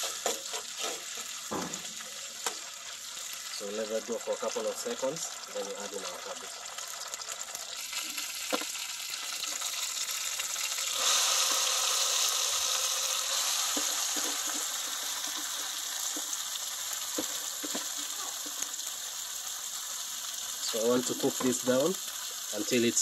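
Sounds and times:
food sizzling in oil: 0.0 - 23.0
soft knocks: 1.5 - 2.0.

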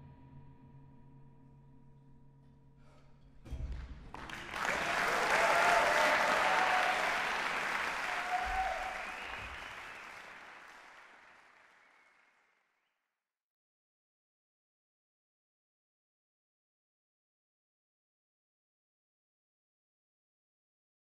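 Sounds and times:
audience applauding: 4.0 - 12.6
audience cheering: 4.1 - 12.4.

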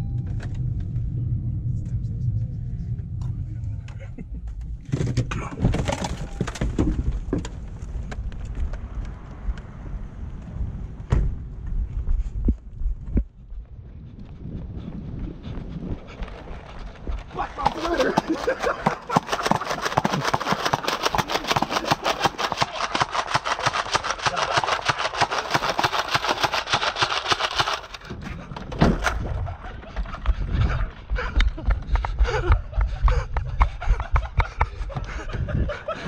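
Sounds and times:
low rumbling: 0.0 - 36.0
toy blasters firing rapidly: 17.6 - 28.1.

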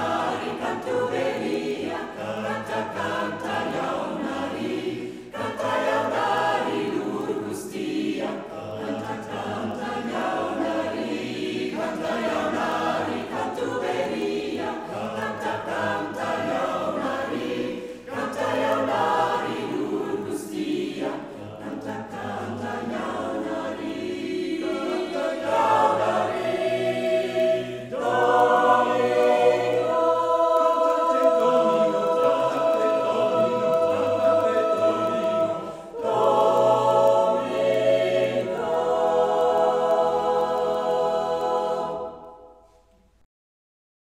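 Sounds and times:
mixed choir singing unaccompanied: 0.0 - 42.8
singers breathing: 5.0 - 5.4, 17.8 - 18.1, 35.6 - 36.0.

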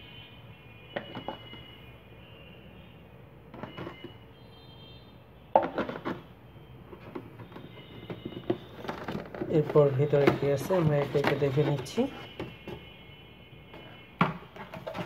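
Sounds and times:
clatter of knocks and scrapes: 5.6 - 6.2, 6.9 - 12.8, 14.2 - 15.0
cardboard packaging rustling: 7.0 - 12.9, 14.5 - 15.0.

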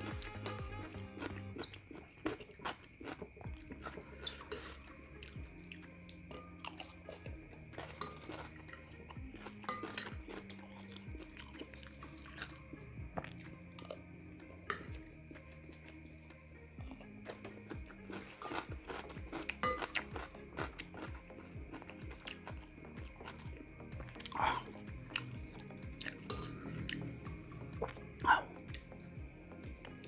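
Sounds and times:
chewing and crunching food: 0.0 - 30.0
soft background music: 0.0 - 30.0
spoon knocking glass bowl: 26.3 - 26.6.

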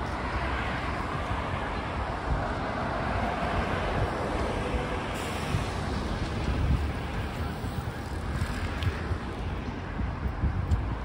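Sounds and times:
bus driving past: 0.0 - 10.1
road traffic noise: 0.0 - 11.0.

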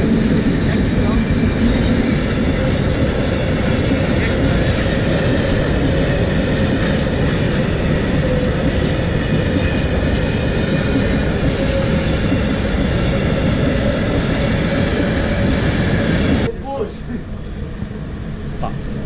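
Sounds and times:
freight train wheels rumbling: 0.0 - 19.0.

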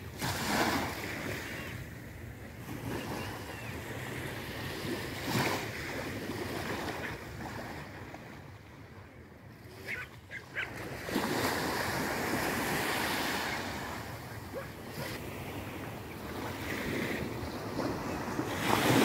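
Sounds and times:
waves breaking on shore: 0.0 - 9.0, 9.6 - 19.0
gull calls: 9.8 - 10.8.

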